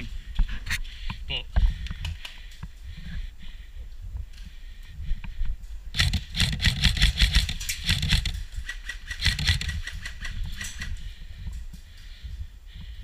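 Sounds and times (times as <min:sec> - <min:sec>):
airsoft rifle rapid firing: 0:06.0 - 0:10.9.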